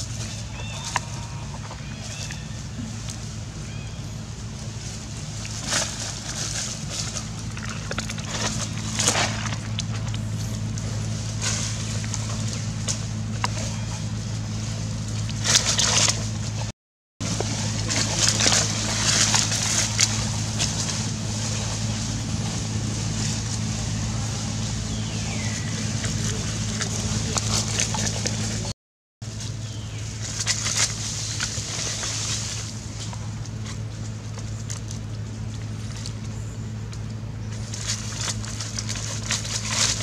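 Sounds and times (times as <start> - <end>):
dry leaves crunching and rustling: 0.0 - 16.4, 17.2 - 40.0
steady low hum: 0.0 - 40.0.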